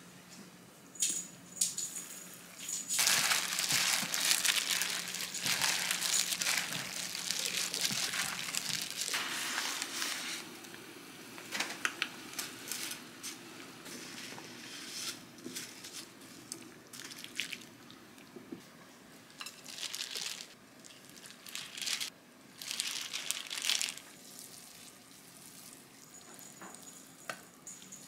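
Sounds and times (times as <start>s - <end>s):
gloved hand mixing salad: 3.0s - 10.4s, 19.5s - 25.8s
plastic crinkles: 3.0s - 10.4s, 19.4s - 24.2s.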